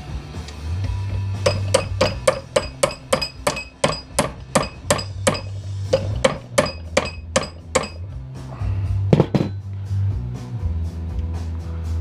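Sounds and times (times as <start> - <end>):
hammer striking metal: 1.4 - 8.1.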